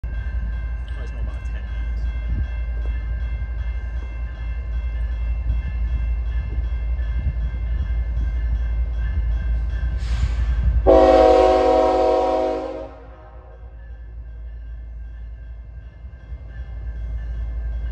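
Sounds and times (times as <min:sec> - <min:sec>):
diesel locomotive rumble: 0:00.0 - 0:17.9
train horn blast: 0:10.8 - 0:13.7.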